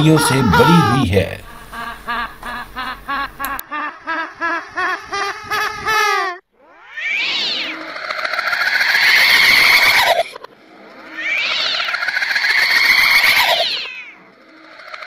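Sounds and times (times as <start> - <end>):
long wailing cries: 0.0 - 1.3.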